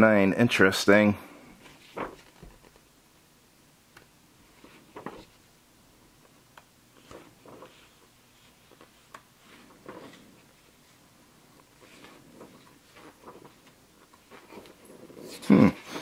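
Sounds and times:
paper pages turning: 0:01.6 - 0:02.9, 0:04.0 - 0:05.4, 0:06.2 - 0:16.0.

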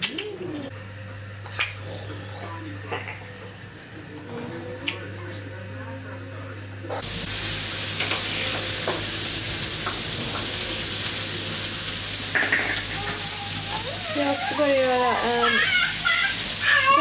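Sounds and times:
hamburgers sizzling in a pan: 0:07.0 - 0:17.0.

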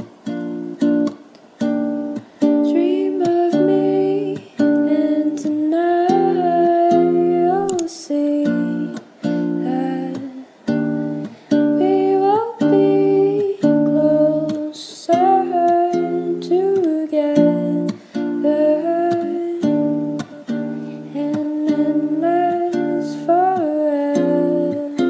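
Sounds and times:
mellow plucked guitar music: 0:00.0 - 0:25.0.

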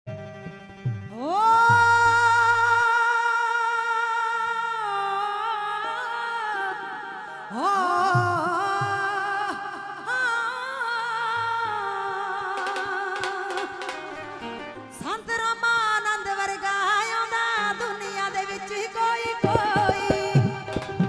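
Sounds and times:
woman singing into a microphone: 0:01.1 - 0:21.0.

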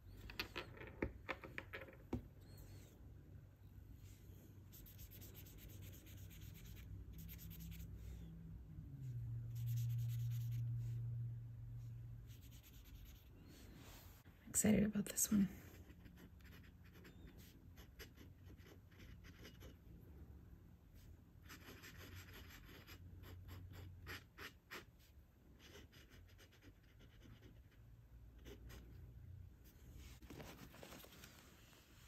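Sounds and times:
pen nib scratching on paper: 0:15.7 - 0:19.8, 0:21.5 - 0:25.0, 0:25.6 - 0:27.8
paper rustle: 0:30.2 - 0:32.0.

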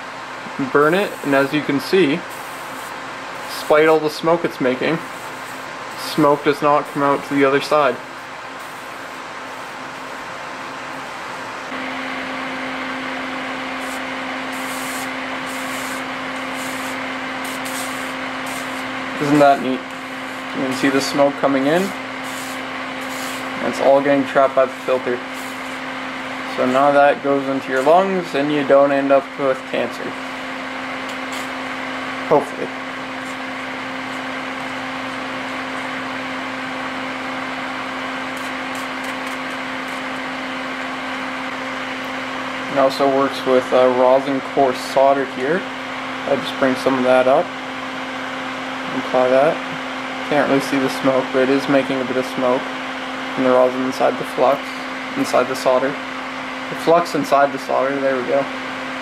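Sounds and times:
cooling fan running: 0:00.0 - 0:59.0
soldering flux sizzling: 0:00.5 - 0:42.2.

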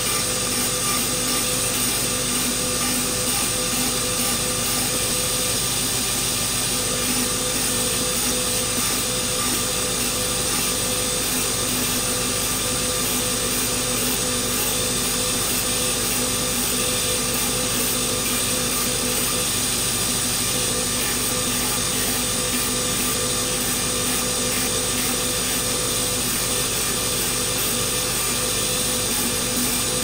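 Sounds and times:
belt sander grinding metal: 0:00.0 - 0:30.0.

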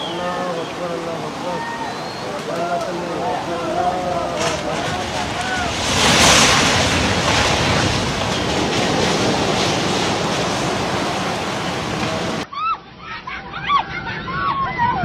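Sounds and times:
people talking excitedly: 0:00.0 - 0:06.2
building collapsing into water: 0:00.0 - 0:12.4
floodwater roaring: 0:00.0 - 0:12.5.

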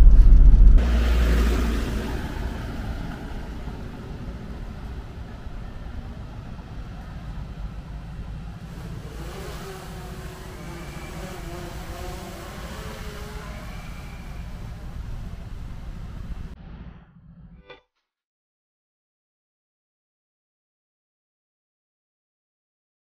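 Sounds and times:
car road and engine noise: 0:00.0 - 0:16.6.

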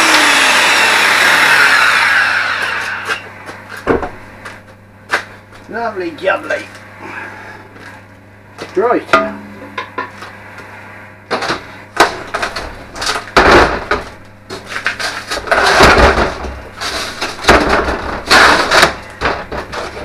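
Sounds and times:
metal clang ringing: 0:09.1 - 0:09.9
metal knocking and scraping: 0:11.3 - 0:20.0.

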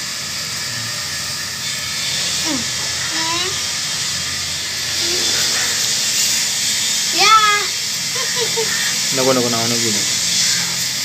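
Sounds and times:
steady hiss: 0:00.0 - 0:11.0
voice-like gliding sounds: 0:02.4 - 0:07.7.

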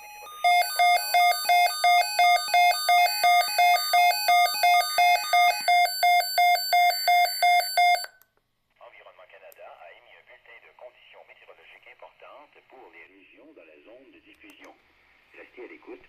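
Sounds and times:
rapid alarm beeping: 0:00.0 - 0:08.1
stepping alarm tones: 0:00.0 - 0:08.2.

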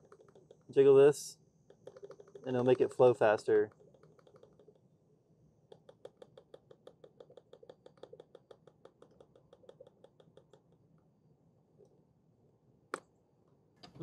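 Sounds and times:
rapid light plastic clicking: 0:00.0 - 0:00.7, 0:01.7 - 0:02.9, 0:03.6 - 0:04.9, 0:05.7 - 0:10.8.

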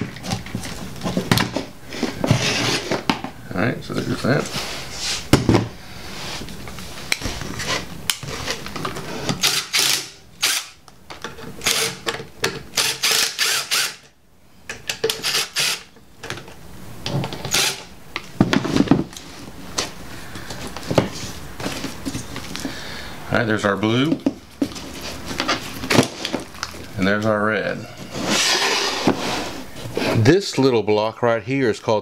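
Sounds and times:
cordless drill running: 0:12.8 - 0:14.0, 0:15.2 - 0:15.8, 0:17.5 - 0:17.8.

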